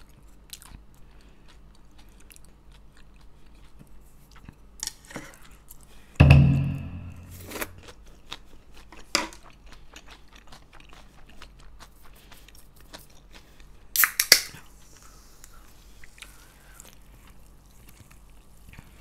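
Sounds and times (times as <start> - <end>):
close-mouthed chewing crunches: 0.0 - 6.1, 7.7 - 19.0
ringing knock: 6.2 - 7.5
drink can cracked open hiss: 14.0 - 14.5.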